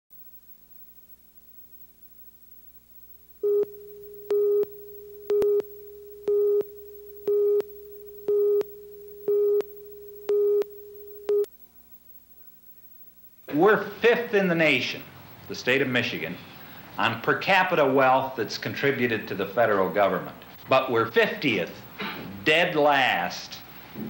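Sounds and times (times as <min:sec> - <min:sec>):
electronic test tone: 0:03.4 - 0:11.5
pulsing beeps: 0:03.4 - 0:11.5.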